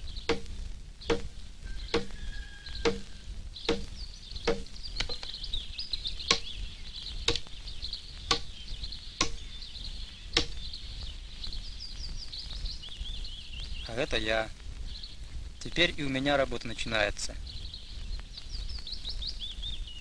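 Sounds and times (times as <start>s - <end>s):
birds chirping: 0.0s - 20.0s
axe chopping log: 0.2s - 1.3s, 1.9s - 2.2s, 2.8s - 3.1s, 3.7s - 5.2s, 6.3s - 6.5s, 7.3s - 7.5s, 8.3s - 8.5s, 9.2s - 9.4s, 10.4s - 10.6s.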